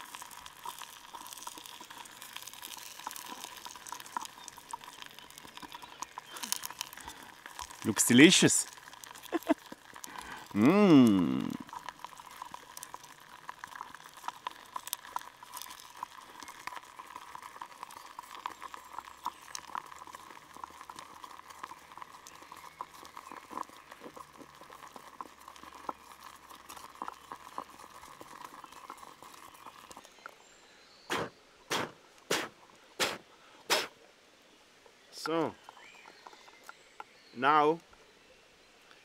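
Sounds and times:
wooden stick stirring: 0.0s - 30.0s
melting wax crackling and popping: 0.0s - 30.6s, 34.5s - 38.1s.

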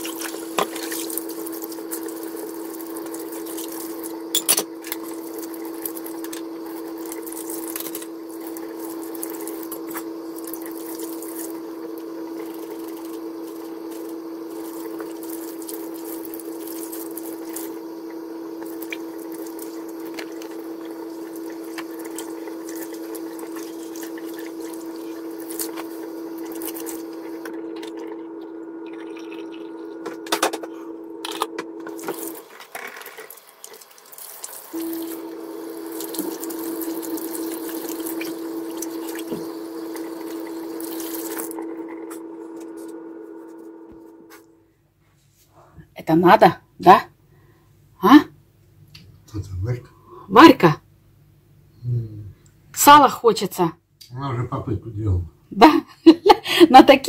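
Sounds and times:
steady hum: 0.0s - 33.3s, 34.6s - 44.5s
tap water running into sink: 31.9s - 41.6s.

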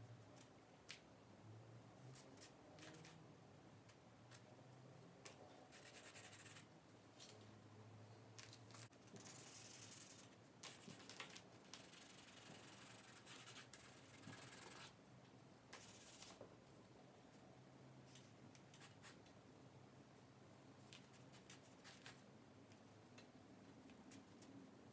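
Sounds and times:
pencil scratching on paper: 5.7s - 6.7s, 11.8s - 15.0s, 15.8s - 16.3s.

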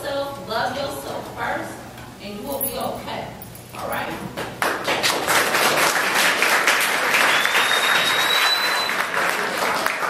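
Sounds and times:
audience applauding: 4.6s - 10.0s
thin high whistle tone: 7.3s - 9.1s.

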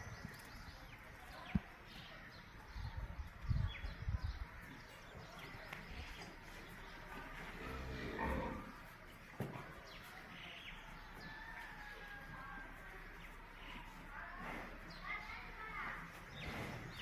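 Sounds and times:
small birds chirping: 0.0s - 17.0s
cattle lowing: 7.2s - 8.8s.

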